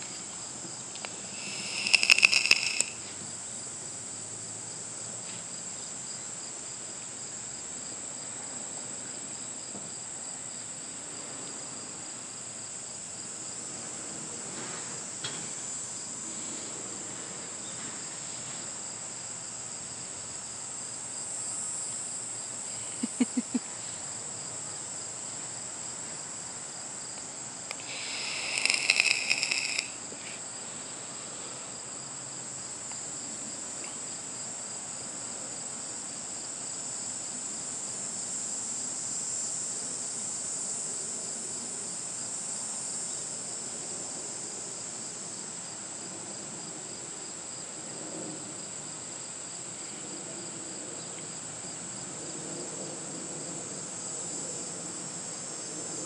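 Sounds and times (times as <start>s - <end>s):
louder higher insect sound: 0.0s - 3.7s, 19.2s - 32.7s
insects trilling: 0.0s - 4.8s, 17.6s - 47.6s.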